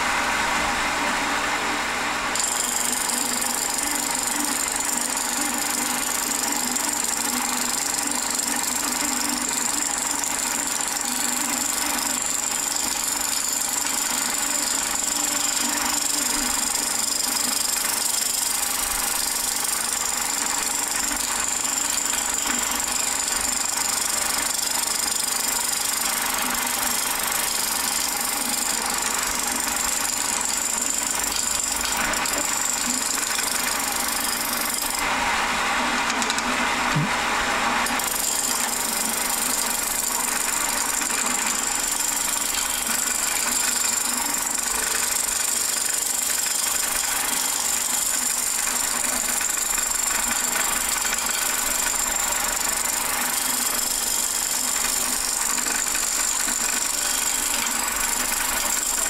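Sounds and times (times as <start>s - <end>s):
lathe tool cutting wood: 0.0s - 36.4s, 37.0s - 59.0s
lathe hum: 0.0s - 59.0s.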